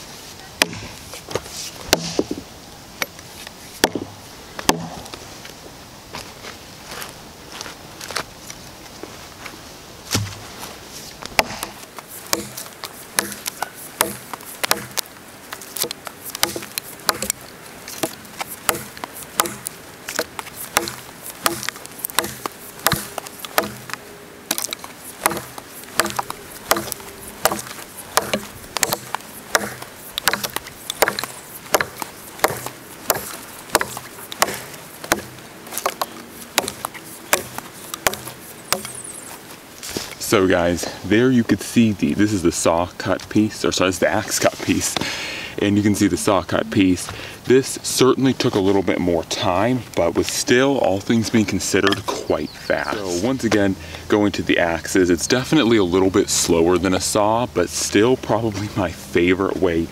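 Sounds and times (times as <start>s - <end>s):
axe chopping log: 0.6s - 2.4s, 3.8s - 5.2s, 10.1s - 10.4s, 11.3s - 15.1s, 15.7s - 39.0s.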